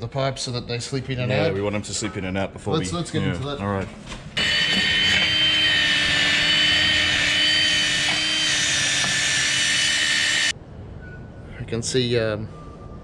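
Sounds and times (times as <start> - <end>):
grinder disc whining against steel pipe: 4.4 - 10.5.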